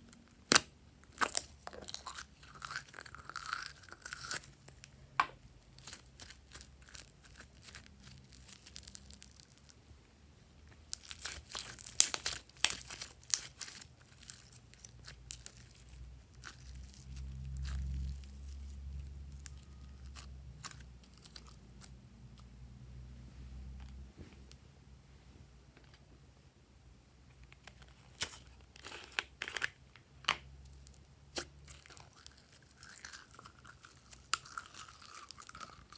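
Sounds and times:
slime squeezed by hand crackling: 5.7 - 9.8, 10.8 - 22.0.

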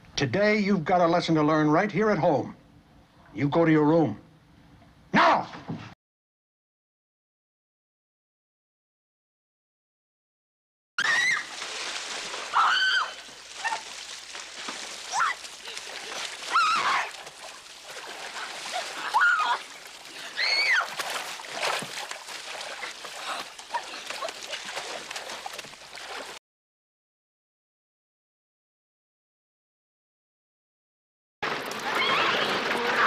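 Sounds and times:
woman shrieking: 11.0 - 11.5, 12.5 - 13.9, 15.1 - 15.5, 16.5 - 17.2, 18.8 - 21.0
muddy water splashing: 11.0 - 26.4, 31.4 - 33.0.

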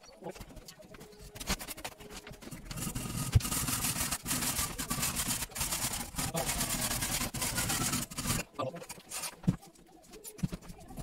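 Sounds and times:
hand saw rasping strokes: 2.7 - 8.5.

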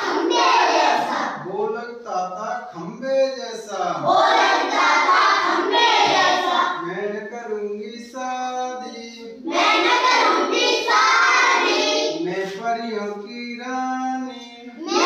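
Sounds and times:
children singing together: 0.0 - 1.4, 4.0 - 7.0, 9.4 - 12.3, 14.8 - 15.0
single voice singing: 12.1 - 15.0.

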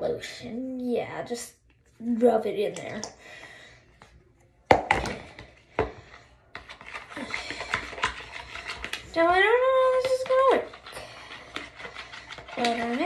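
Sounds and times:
spoon stirring and scraping bowl: 4.8 - 13.0.

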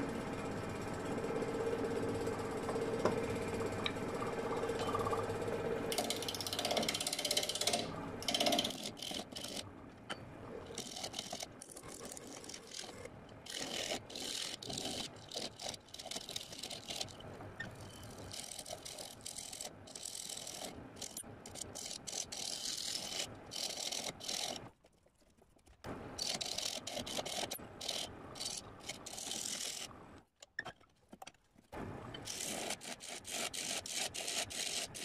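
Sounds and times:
wood lathe running: 0.0 - 9.6, 10.7 - 17.2, 26.2 - 29.9.

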